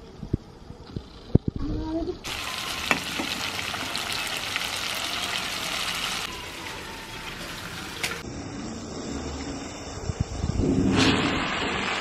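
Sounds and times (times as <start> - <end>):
fish sizzling in oil: 2.3 - 6.6.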